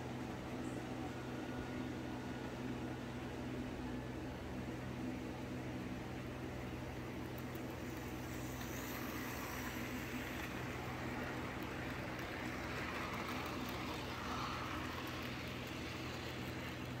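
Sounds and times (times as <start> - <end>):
electric motor hum: 7.2 - 17.0
small wheels rattling on rails: 7.2 - 17.0.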